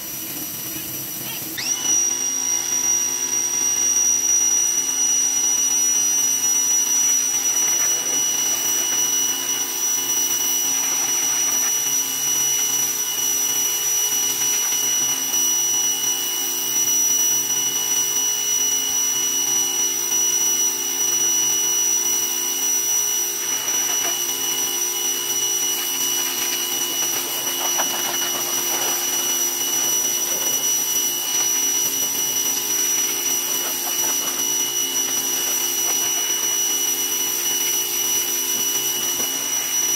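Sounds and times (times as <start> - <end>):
pressure washer motor whine: 0.0 - 39.9
high-pressure water spray hiss: 7.0 - 15.9, 23.2 - 39.9.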